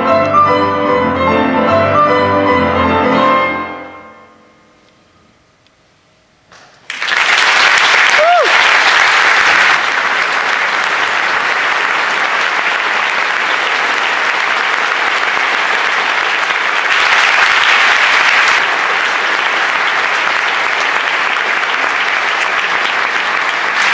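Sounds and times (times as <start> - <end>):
audience applauding: 6.8 - 23.9.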